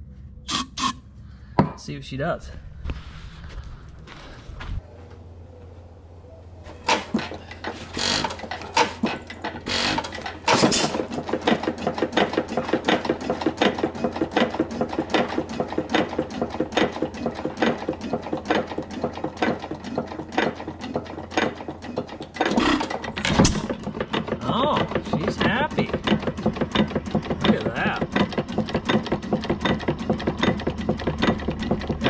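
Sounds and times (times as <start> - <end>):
stationary engine clattering: 5.1 - 32.0
loud engine knocks: 6.7 - 32.0.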